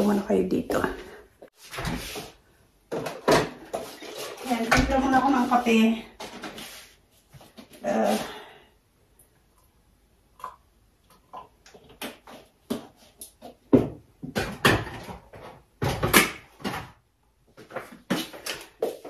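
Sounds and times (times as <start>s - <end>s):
kitchenware clicks and knocks: 13.7s - 17.0s.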